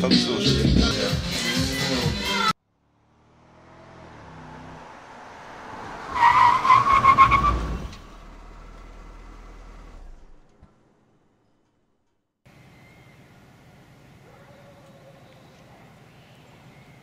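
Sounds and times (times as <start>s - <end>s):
tyre screech: 6.1s - 8.4s.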